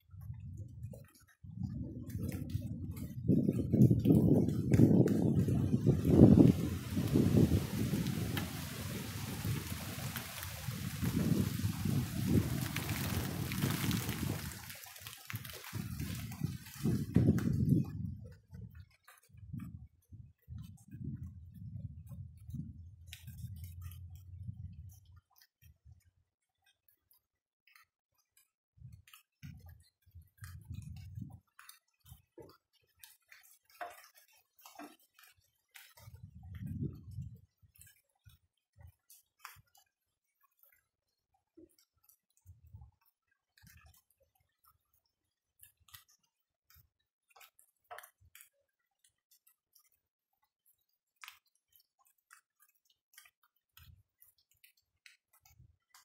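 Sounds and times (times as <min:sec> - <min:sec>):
raindrops pattering: 0:01.0 - 0:19.7, 0:41.6 - 0:56.0.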